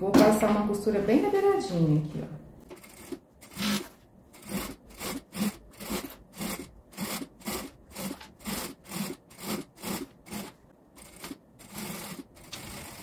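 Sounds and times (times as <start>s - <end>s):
sewing machine stitching: 2.7s - 13.0s.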